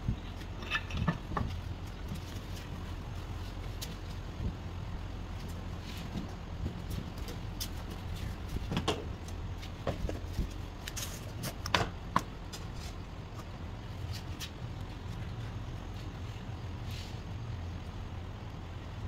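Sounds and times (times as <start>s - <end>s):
steady low hum: 0.0s - 19.0s
metal clicks and knocks: 0.4s - 1.6s.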